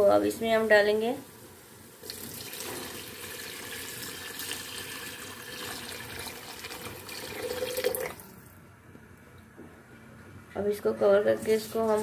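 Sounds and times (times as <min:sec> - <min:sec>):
stock pouring into a pot: 0:02.0 - 0:08.3.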